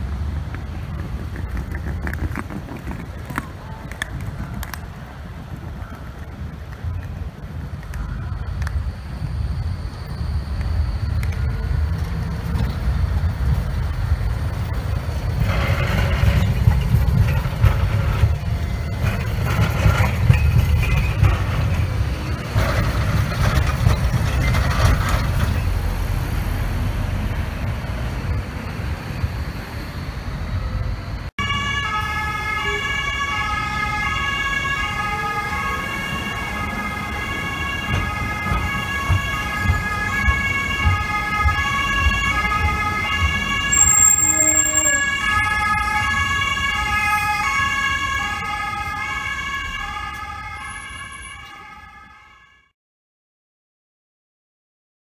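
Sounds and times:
tram wheels rumbling on rails: 0.0 - 52.2
high-pitched tones: 43.7 - 45.4.

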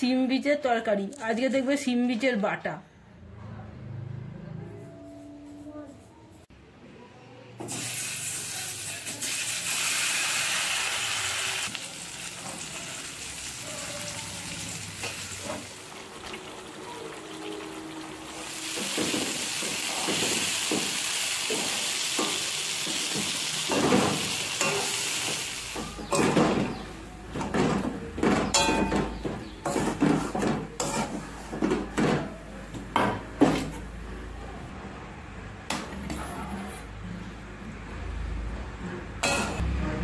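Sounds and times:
paste sizzling in oil: 7.7 - 25.8
metal spatula scraping a pot: 28.5 - 31.7.

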